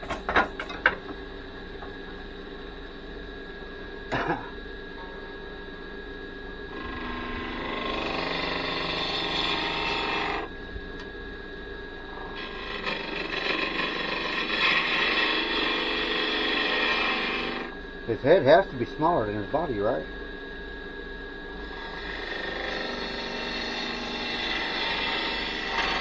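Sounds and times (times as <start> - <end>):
turning tool cutting wood: 6.7 - 10.5, 12.4 - 17.7, 21.6 - 26.0
wood lathe motor hum: 6.7 - 11.1, 12.3 - 20.0, 21.6 - 26.0.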